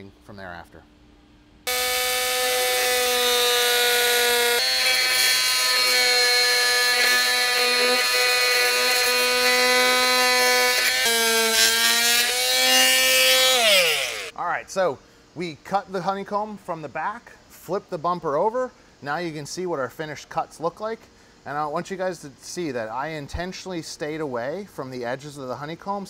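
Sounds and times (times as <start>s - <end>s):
rotary tool cutting plastic: 1.7s - 14.3s.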